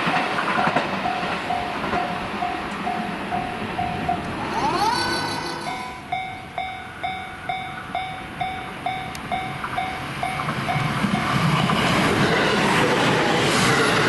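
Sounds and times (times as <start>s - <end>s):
level crossing bell clanging: 0.0s - 11.5s
electric train passing: 0.0s - 14.0s.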